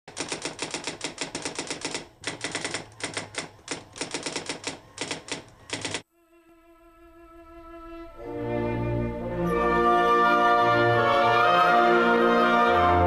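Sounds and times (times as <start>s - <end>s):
typewriter keys clacking: 0.1s - 6.0s.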